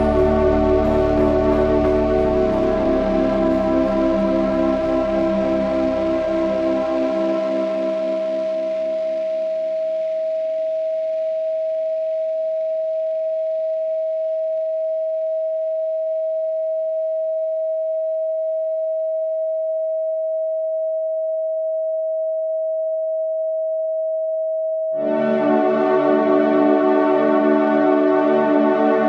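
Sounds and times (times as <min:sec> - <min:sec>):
thick ambient synth chord: 0:00.0 - 0:09.4, 0:25.0 - 0:29.0
soft ambient music: 0:00.0 - 0:10.8, 0:25.0 - 0:29.0
steady sine tone: 0:00.0 - 0:29.0.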